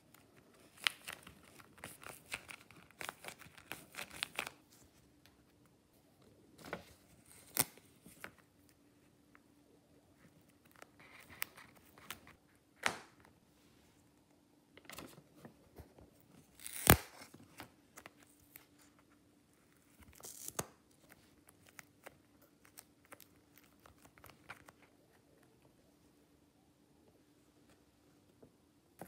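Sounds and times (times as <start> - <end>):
paper rustling and crinkling: 0.1 - 5.1
sharp paper snap: 16.6 - 17.3.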